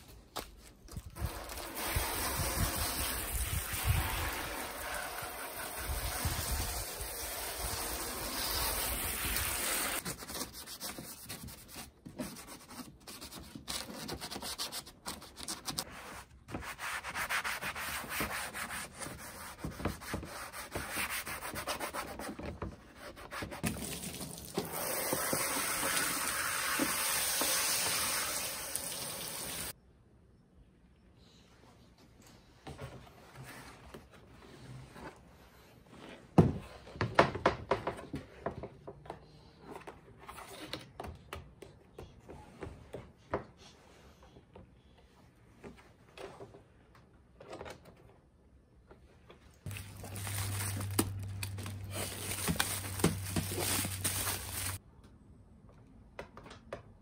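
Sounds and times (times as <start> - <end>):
hose spraying water on plastic: 1.2 - 10.0, 23.7 - 29.7, 51.9 - 54.8.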